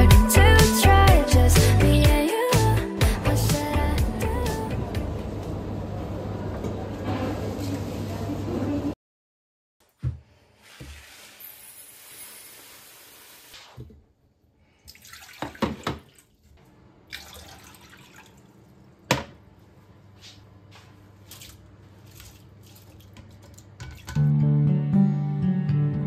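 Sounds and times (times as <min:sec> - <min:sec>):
water splashes and drips: 0:14.7 - 0:18.9, 0:21.2 - 0:24.2.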